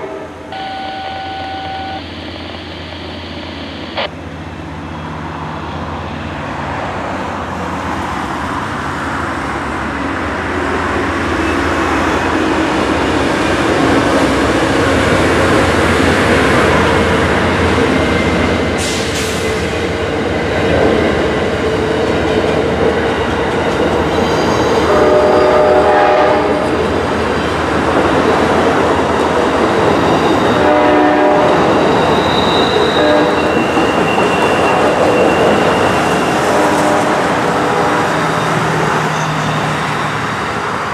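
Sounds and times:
passenger train rumbling past: 0:00.0 - 0:40.9
brief pitched tones: 0:00.5 - 0:04.1.

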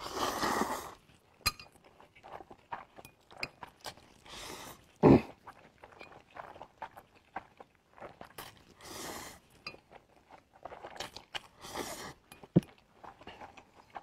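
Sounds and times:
noodle slurps: 0:00.0 - 0:01.0, 0:10.9 - 0:12.3
wet chewing and mouth clicks: 0:00.0 - 0:14.0.

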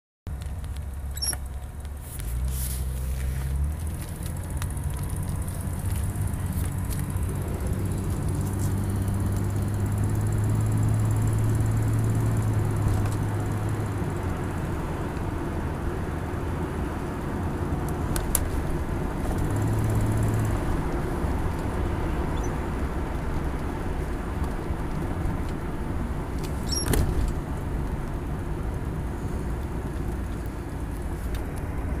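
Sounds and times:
car engine revving: 0:02.2 - 0:15.9.

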